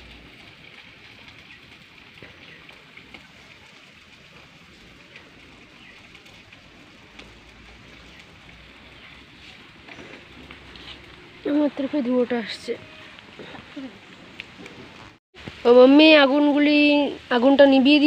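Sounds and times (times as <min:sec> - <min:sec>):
small wood crackles: 0:00.0 - 0:18.0.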